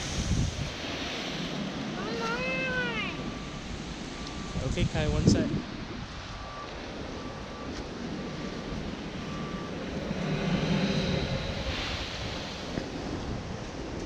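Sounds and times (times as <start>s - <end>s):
surf washing over rock: 0.0s - 5.9s
rush of water and air from blowhole: 0.0s - 14.0s.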